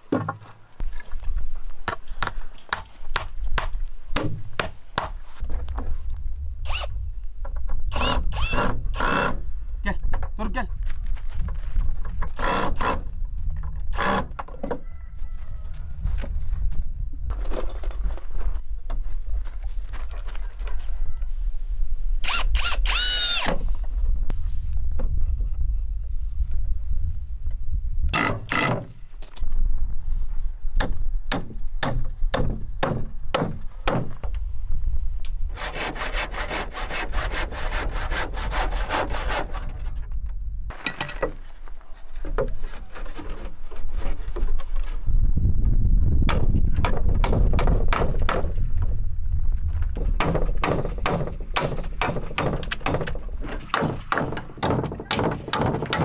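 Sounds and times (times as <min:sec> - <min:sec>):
hand saw cutting wood: 0:07.9 - 0:09.4, 0:12.4 - 0:13.1, 0:28.2 - 0:28.9, 0:35.5 - 0:39.9.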